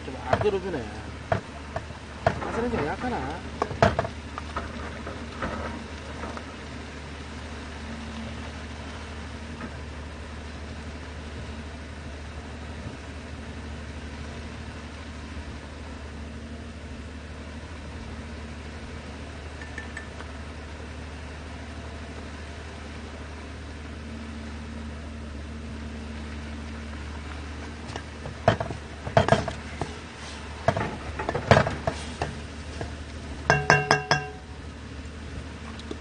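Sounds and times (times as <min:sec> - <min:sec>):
steady low hum: 0:00.0 - 0:36.0
metal cookware clinking: 0:33.5 - 0:34.5.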